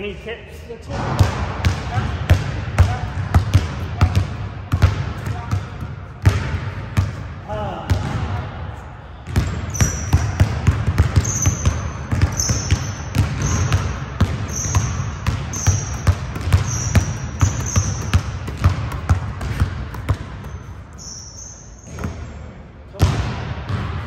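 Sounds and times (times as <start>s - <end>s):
basketball dribbling on court: 1.0s - 7.2s, 7.9s - 8.4s, 9.2s - 21.2s, 21.8s - 22.3s, 23.0s - 24.0s
short high-pitched squeaks: 21.0s - 21.9s.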